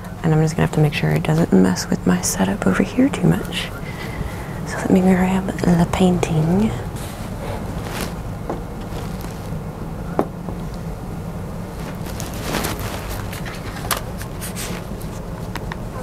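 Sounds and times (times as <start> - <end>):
steady low hum: 0.0 - 16.0
board rustling: 7.0 - 9.7, 11.7 - 15.3.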